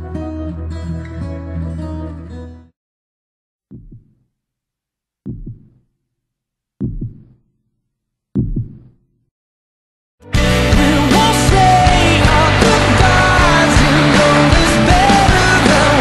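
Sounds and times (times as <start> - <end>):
deep low thuds: 5.3 - 5.7, 6.8 - 7.3
loud rock music: 10.2 - 16.0.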